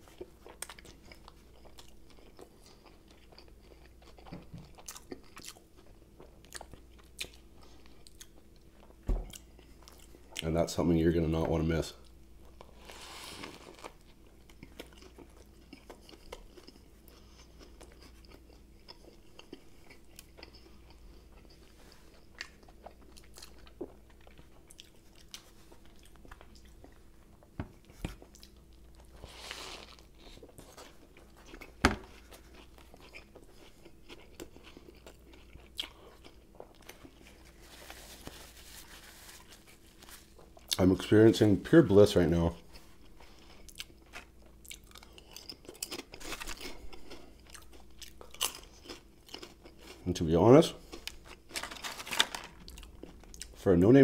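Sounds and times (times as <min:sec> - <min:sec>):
chewing sandwich: 0:00.0 - 0:10.6, 0:12.0 - 0:41.2, 0:42.6 - 0:53.6
faint steady hum: 0:00.0 - 0:54.0.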